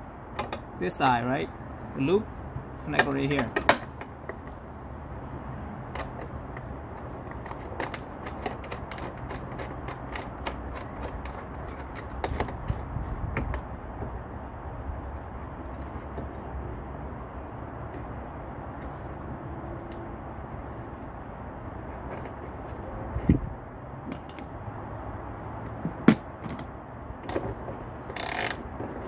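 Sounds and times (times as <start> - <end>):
ratchet wrench clicking: 28.1 - 28.6.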